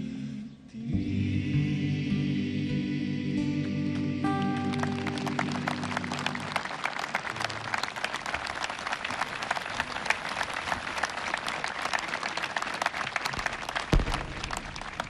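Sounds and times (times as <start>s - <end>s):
large audience applauding: 4.4s - 15.0s.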